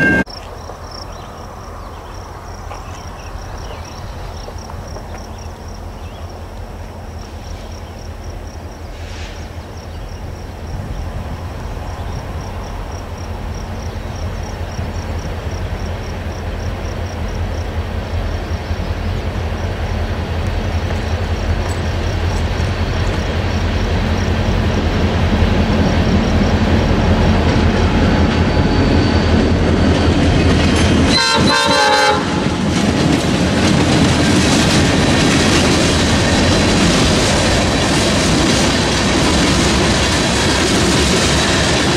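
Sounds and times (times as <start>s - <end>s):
train horn blast: 0.0s - 0.3s, 31.1s - 32.6s
crossing bell ringing: 0.0s - 0.4s
diesel locomotive engine rumble: 0.0s - 41.9s.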